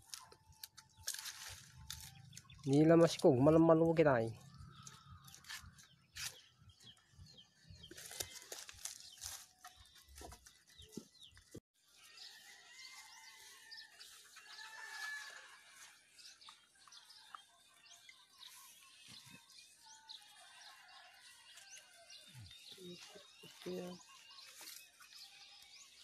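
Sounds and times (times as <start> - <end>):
goats chewing palm fronds: 0.0 - 2.6, 7.6 - 26.0
distant bird calls: 4.3 - 11.5.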